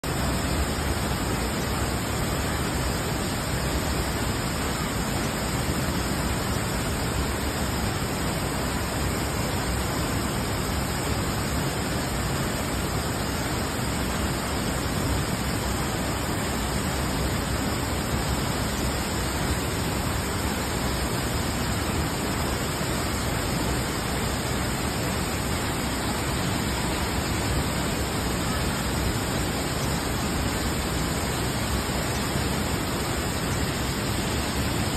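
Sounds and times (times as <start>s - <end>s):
waterfall rushing: 0.1s - 34.9s.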